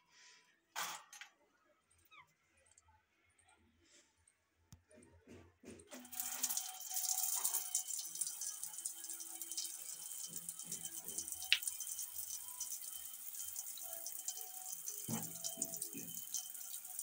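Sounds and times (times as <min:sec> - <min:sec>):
shower water spraying: 0:06.0 - 0:17.0.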